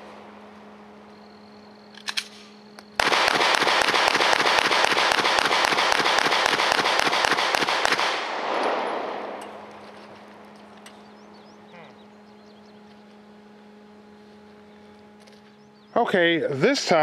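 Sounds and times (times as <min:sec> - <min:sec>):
pistol firing rapid shots: 0:03.0 - 0:09.2.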